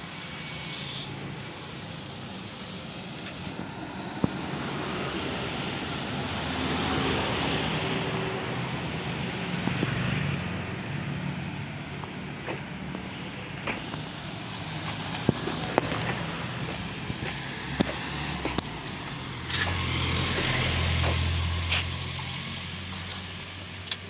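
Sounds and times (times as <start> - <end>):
engine hum: 0.0 - 24.0
vehicle rushing past: 14.0 - 23.8.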